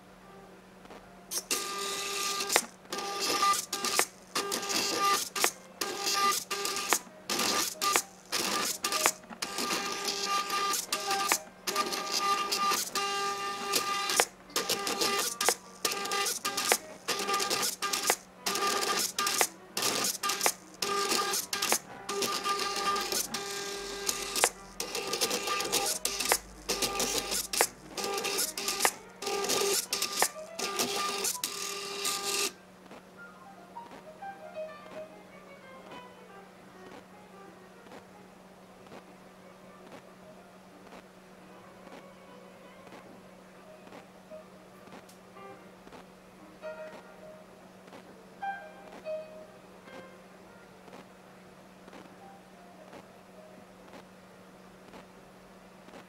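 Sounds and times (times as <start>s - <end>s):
plotter motors whining: 1.3s - 32.6s
sharp clicks: 2.4s - 9.8s, 13.7s - 23.4s, 24.1s - 31.6s.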